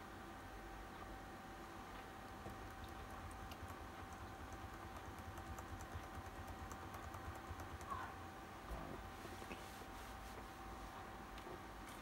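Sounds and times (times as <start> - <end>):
laptop key tapping: 2.4 - 8.0.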